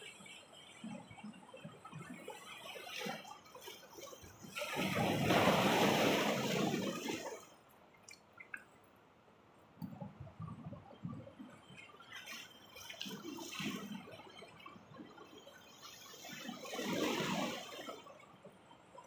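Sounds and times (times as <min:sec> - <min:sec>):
small water splashes and trickles: 0:00.0 - 0:19.0
sea wave washing among rocks: 0:02.8 - 0:07.5, 0:15.9 - 0:18.2.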